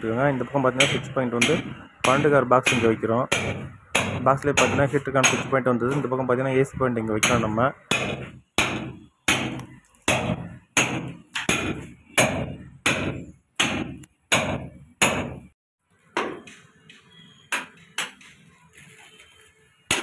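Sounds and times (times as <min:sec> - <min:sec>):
hammer striking steel chisel: 0:00.8 - 0:06.1, 0:07.2 - 0:15.6, 0:16.2 - 0:18.4.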